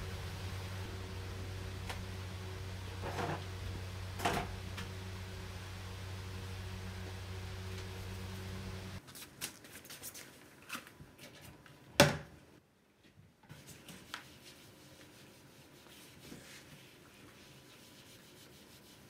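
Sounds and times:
cloth rubbing cabinet doors: 0.0 - 9.0
steady low hum: 0.0 - 9.0.

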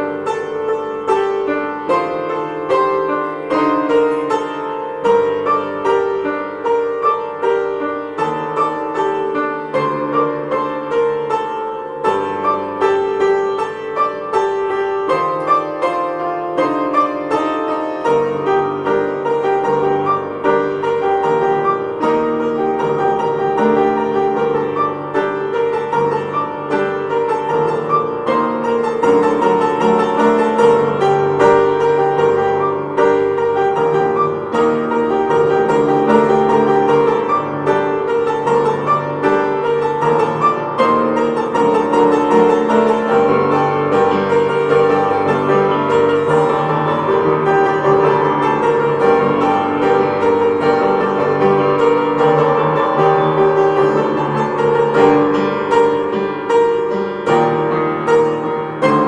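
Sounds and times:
piano music: 0.0 - 59.0.

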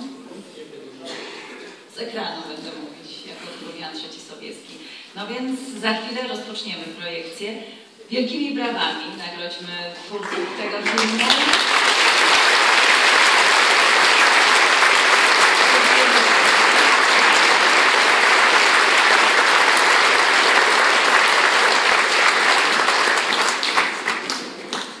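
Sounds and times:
audience applauding: 10.2 - 25.0.

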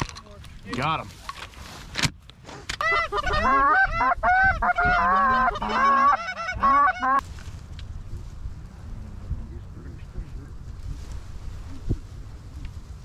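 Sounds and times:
goose honking and clucking: 2.8 - 7.2.

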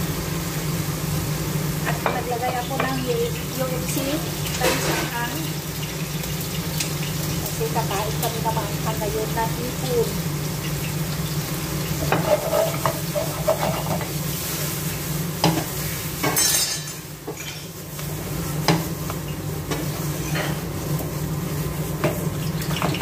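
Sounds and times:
food sizzling in a frying pan: 0.0 - 23.0.

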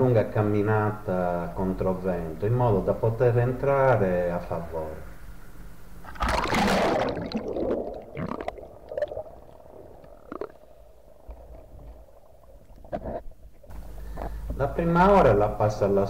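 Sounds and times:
water splashing: 6.0 - 13.7
underwater gurgling and bubbles: 6.0 - 14.2.

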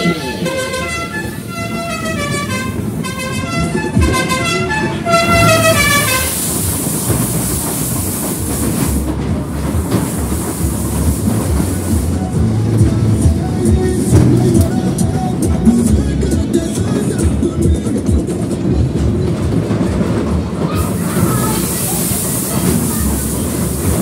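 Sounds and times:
horn-like tune of stepped notes: 0.0 - 6.5
ride car rumbling and clattering: 0.0 - 24.0
loud rushing hiss: 5.3 - 13.2, 20.8 - 24.0.

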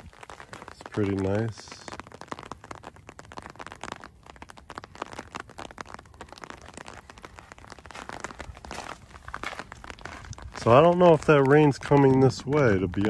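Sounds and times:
rain tapping on an umbrella: 0.0 - 13.0.

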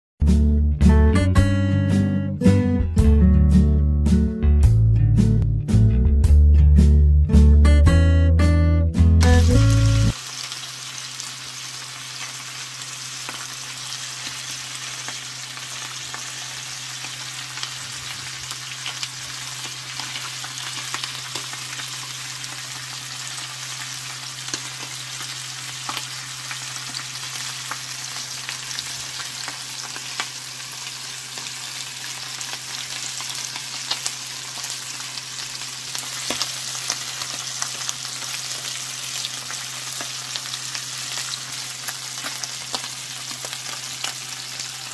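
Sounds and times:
fish sizzling in hot oil: 9.2 - 44.9.

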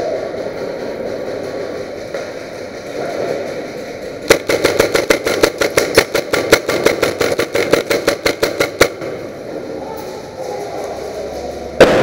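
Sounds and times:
airsoft gun full-auto burst: 4.3 - 9.2.

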